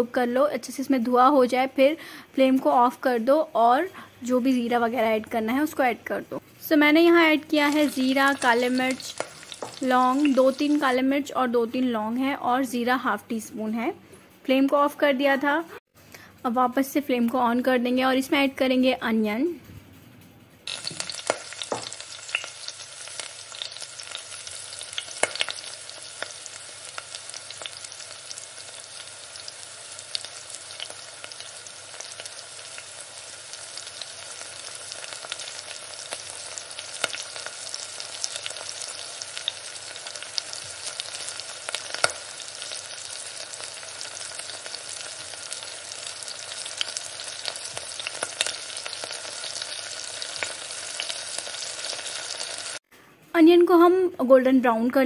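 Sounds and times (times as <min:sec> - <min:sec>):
onions sizzling in oil: 0:06.6 - 0:11.6, 0:20.7 - 0:52.8.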